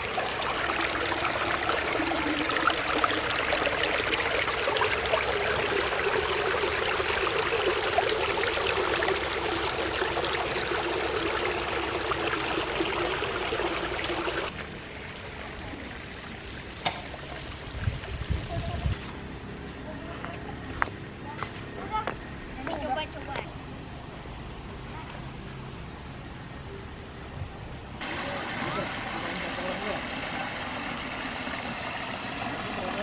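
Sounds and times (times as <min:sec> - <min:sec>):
water running over rocks: 0:00.0 - 0:18.7, 0:28.0 - 0:33.0.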